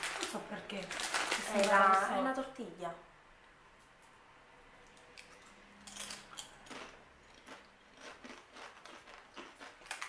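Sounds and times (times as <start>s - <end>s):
chips crunched while chewing: 4.9s - 10.0s.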